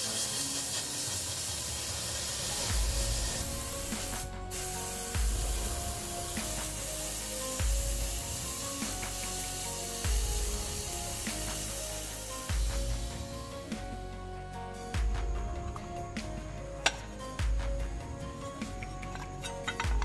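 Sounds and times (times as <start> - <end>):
sandblasting nozzle hissing: 0.0 - 13.8
background music with bass beat: 2.3 - 20.0.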